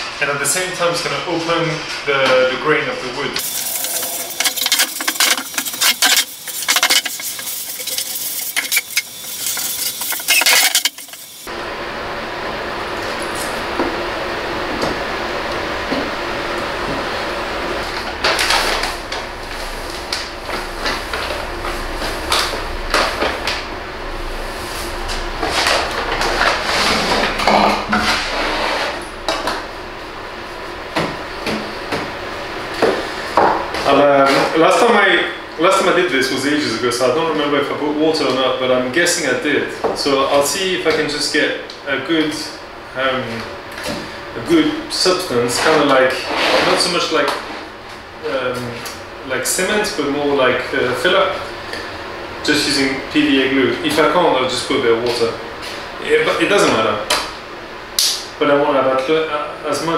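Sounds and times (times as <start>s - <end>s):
hands rustling and scraping: 3.7s - 11.4s
damp cloth scrubbing plywood: 3.8s - 11.3s.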